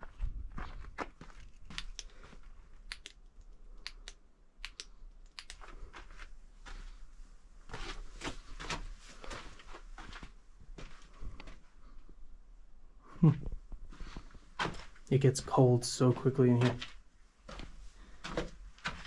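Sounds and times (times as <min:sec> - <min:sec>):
footsteps crunching on rocky floor: 0:00.0 - 0:02.2, 0:14.0 - 0:19.0.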